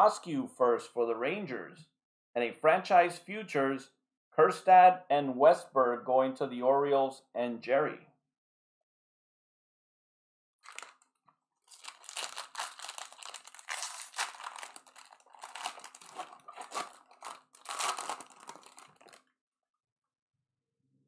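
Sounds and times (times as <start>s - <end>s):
foil wrapper tearing: 10.6s - 19.2s
plastic wrap crinkling: 10.6s - 19.2s.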